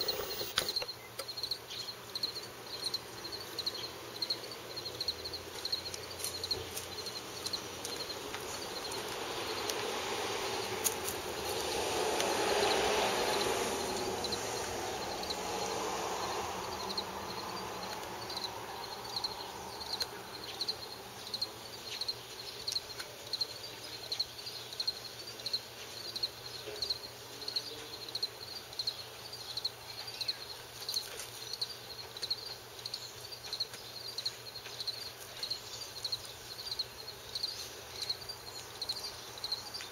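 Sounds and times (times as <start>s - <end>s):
broad rushing noise: 0.0s - 0.7s, 6.6s - 20.4s
crickets chirping: 0.0s - 39.9s.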